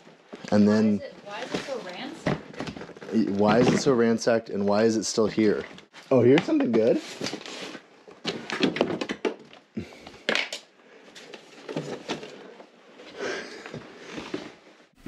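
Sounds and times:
junk rustling and clattering: 11.2 - 12.7.

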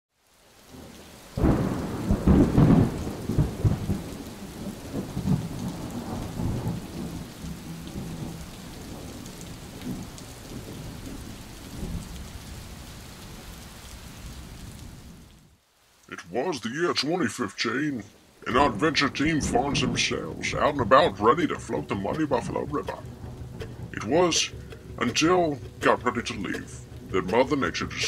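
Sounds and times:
rain falling: 0.1 - 28.0
thunder crack and rumble: 0.7 - 12.6, 18.4 - 27.6.

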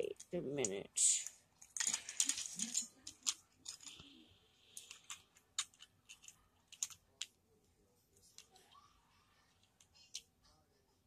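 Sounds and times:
plastic bricks clicking: 1.6 - 4.0, 4.8 - 7.3.

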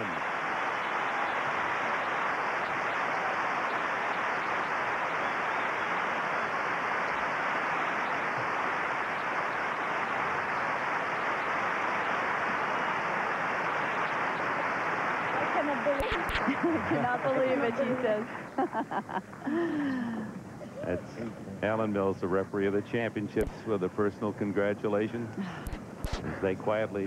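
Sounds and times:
crowd clapping and cheering: 0.0 - 20.1.

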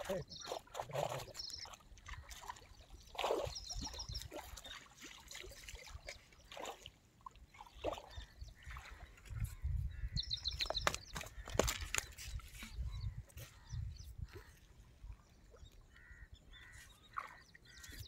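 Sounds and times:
fish splashing in water: 0.4 - 9.1.

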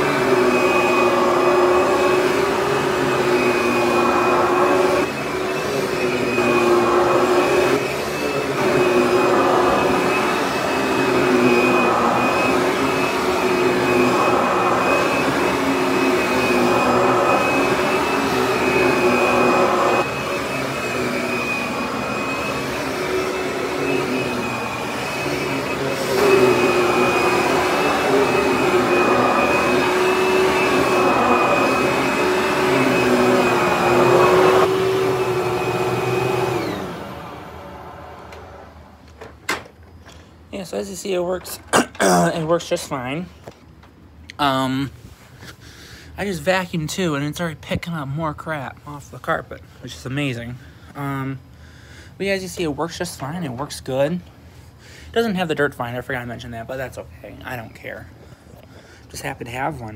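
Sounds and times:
vacuum motor winding down: 0.0 - 39.0
vacuum cleaner motor whine: 0.0 - 39.7.

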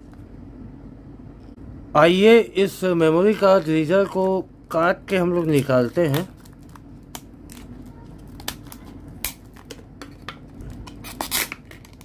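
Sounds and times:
plastic crackling: 5.1 - 12.0
scissors snipping plastic: 5.4 - 12.0.

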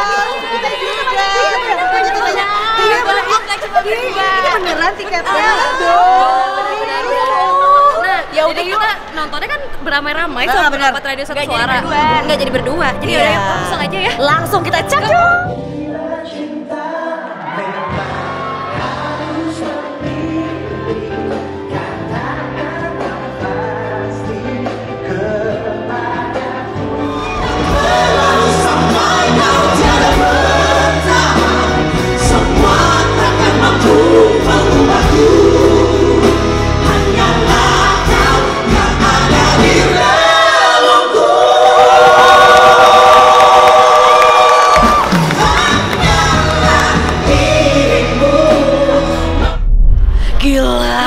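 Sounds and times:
live pop ballad with singers: 14.9 - 51.0.

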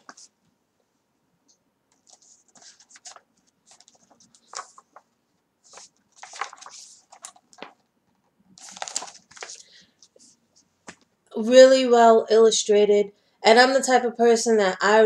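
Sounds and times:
pages turning and rustling: 0.0 - 0.3, 1.9 - 7.9, 8.6 - 11.1.

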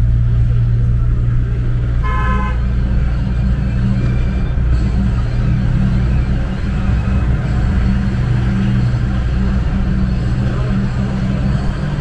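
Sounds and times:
car engine and road noise: 0.0 - 12.0
vehicle horn toot: 2.0 - 2.8.

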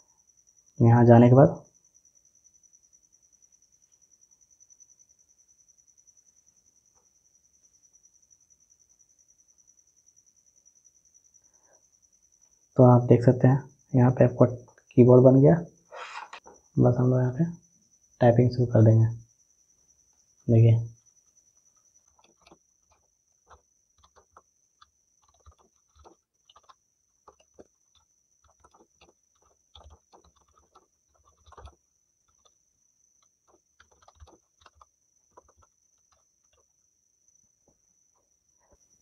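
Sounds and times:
faint high whine: 0.0 - 39.0
keyboard typing clicks: 22.0 - 32.6, 33.2 - 36.8.

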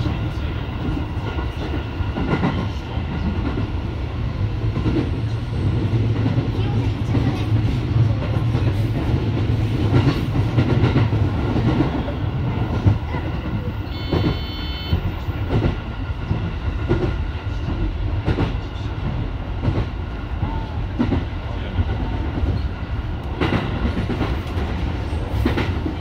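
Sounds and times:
train rumbling: 0.0 - 26.0
brief high-pitched tone: 13.9 - 15.0.

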